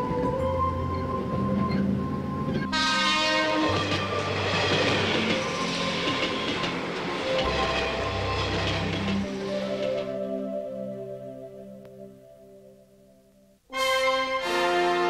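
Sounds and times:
electric train running past: 0.0s - 11.6s
soft background music: 0.0s - 15.0s.

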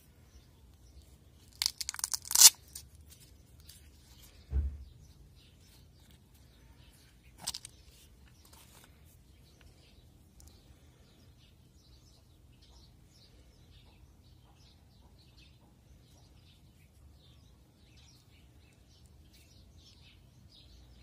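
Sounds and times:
velcro flap ripping open: 1.5s - 3.2s
dull thump: 4.4s - 4.9s.

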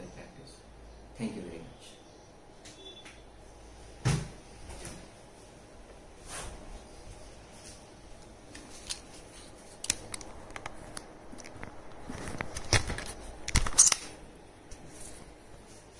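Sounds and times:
phone handling clicks and rustles: 8.5s - 14.2s.

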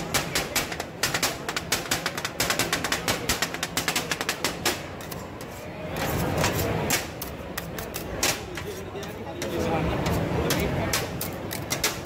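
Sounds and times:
metal spatulas clacking on griddle: 0.0s - 12.0s
spatula scraping griddle: 4.9s - 8.9s.

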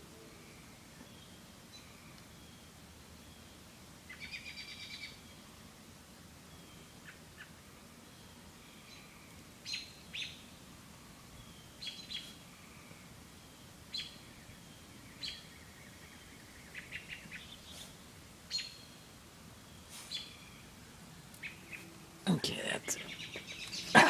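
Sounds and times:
faint outdoor background noise: 0.0s - 24.0s
birds chirping: 11.2s - 24.0s.

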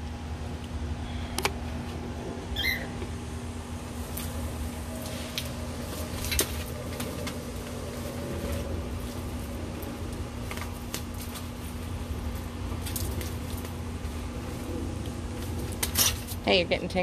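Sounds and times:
low hum: 0.0s - 17.0s
bird feathers rustling: 4.0s - 16.4s.

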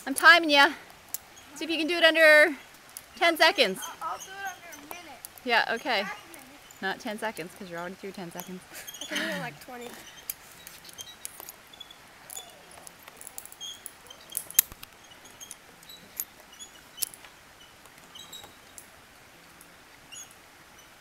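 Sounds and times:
carabiners clicking and clinking: 9.9s - 11.6s, 12.3s - 17.3s.

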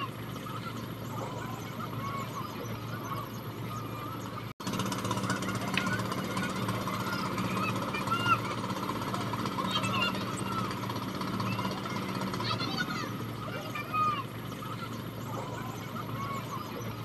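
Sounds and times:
low engine drone with knocking: 4.4s - 17.0s.

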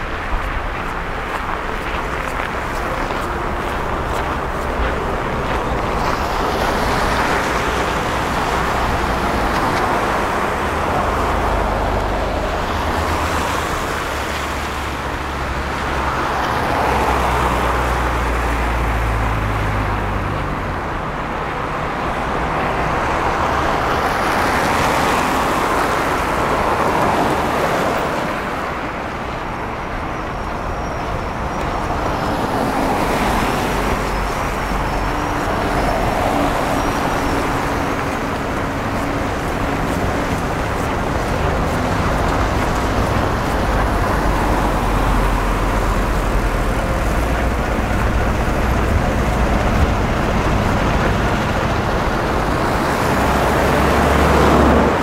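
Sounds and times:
low engine rumble: 0.0s - 13.4s, 30.6s - 55.0s
cars passing: 0.0s - 55.0s.

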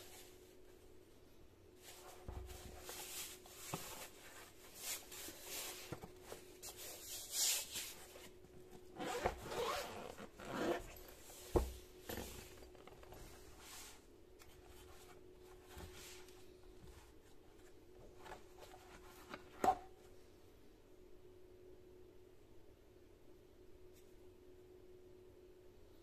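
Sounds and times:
zipper pulled open: 9.0s - 11.0s.

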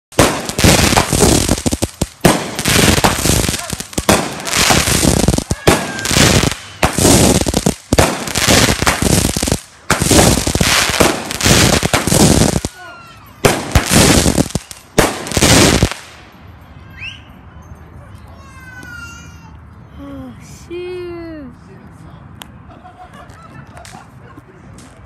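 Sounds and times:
fireworks bangs and crackles: 0.1s - 16.4s.

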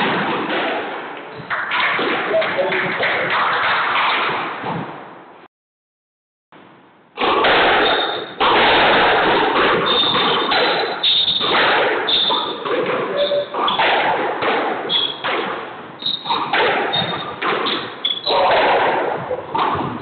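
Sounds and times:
squash ball smacking walls: 0.0s - 5.0s, 7.2s - 20.0s
court shoes squeaking on hardwood: 9.8s - 13.9s, 14.9s - 15.3s, 16.0s - 18.3s.

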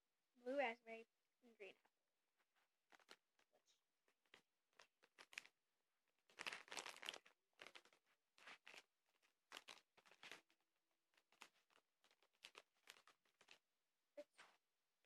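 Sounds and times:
plastic packaging crinkling: 2.9s - 3.4s, 4.1s - 5.6s, 6.2s - 13.7s.

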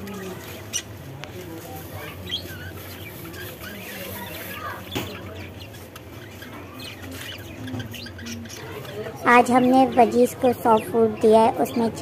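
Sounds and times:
budgerigars chirping: 0.0s - 1.0s, 1.6s - 11.4s.

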